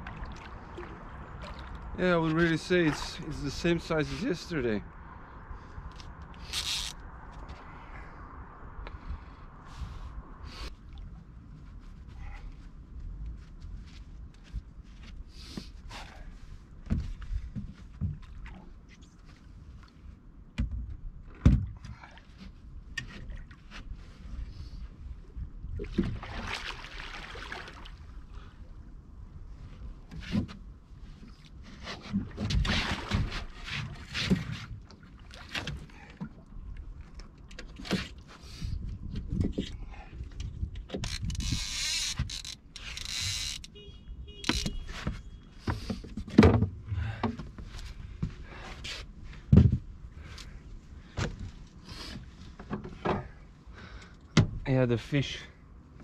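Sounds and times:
water splashing: 0.0 - 4.6, 25.8 - 28.3, 32.2 - 36.5
knocks and clatter in metal boat: 16.8 - 18.6, 20.5 - 23.9, 31.6 - 36.4, 44.3 - 47.8, 49.3 - 50.0, 52.4 - 53.4, 54.3 - 54.6
knocks and thumps on metal boat: 44.4 - 47.6, 54.4 - 54.6.

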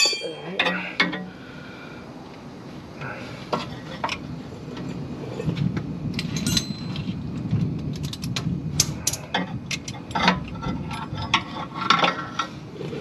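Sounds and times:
metal tool clicking and clinking: 6.2 - 6.9.

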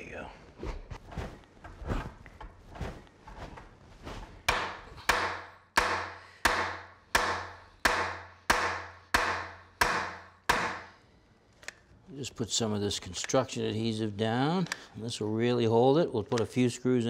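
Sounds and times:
sharp wooden knocks: 4.5 - 10.9.

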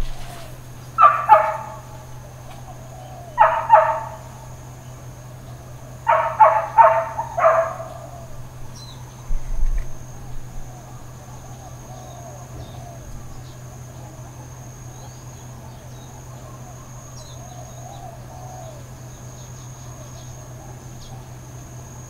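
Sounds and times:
dog barking: 1.0 - 1.9, 3.2 - 4.3, 6.0 - 8.2.

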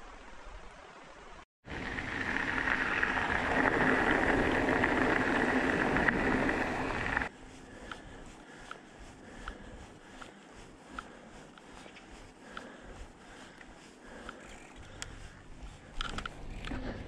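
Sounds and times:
mountain bike rushing noise: 1.7 - 7.9, 12.4 - 17.0
faint irregular ticks: 7.1 - 17.0.

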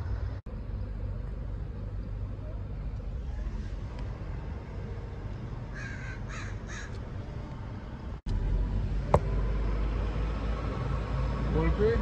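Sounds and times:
low traffic rumble: 0.0 - 12.0
crow cawing: 5.7 - 7.0.

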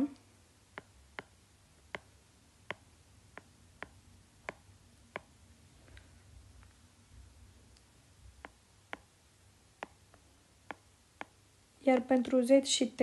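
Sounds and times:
stylus tapping on glass screen: 0.7 - 5.4, 8.4 - 9.1, 9.8 - 12.3.

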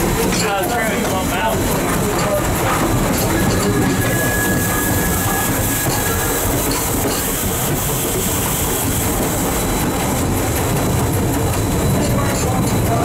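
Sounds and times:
clicking over rail joints: 0.0 - 4.2, 5.8 - 7.6, 9.1 - 13.0
train wheels rumbling on rail: 0.0 - 13.0.

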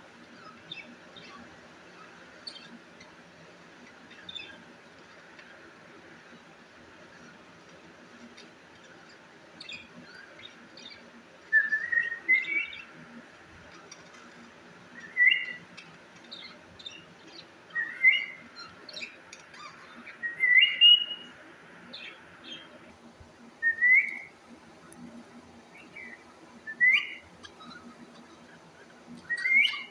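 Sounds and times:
soft bird chirping: 0.2 - 29.9
bird whistled calls: 11.5 - 12.8, 15.0 - 15.6, 17.7 - 18.4, 20.1 - 21.3, 23.6 - 24.3, 26.7 - 27.8, 29.3 - 29.9.

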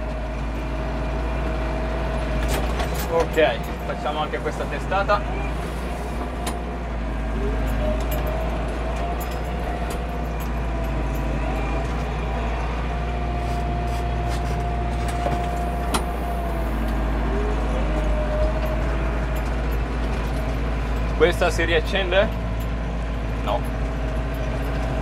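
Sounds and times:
tractor diesel engine drone: 0.0 - 25.0
rattles and knocks: 2.3 - 4.4.

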